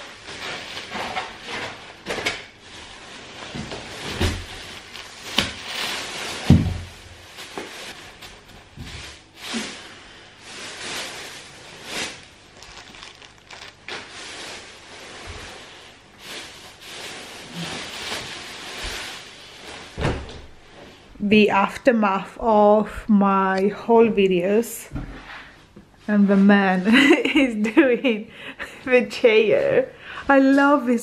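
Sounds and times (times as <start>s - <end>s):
plastic packaging crinkling: 0.0s - 20.0s.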